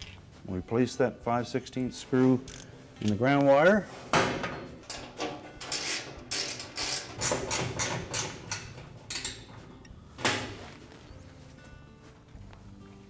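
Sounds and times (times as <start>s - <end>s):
metal clicking and scraping: 4.8s - 10.4s.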